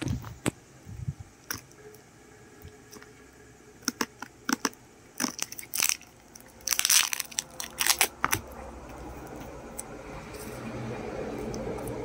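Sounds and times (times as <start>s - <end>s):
plastic shrink wrap crinkling: 5.2s - 8.5s.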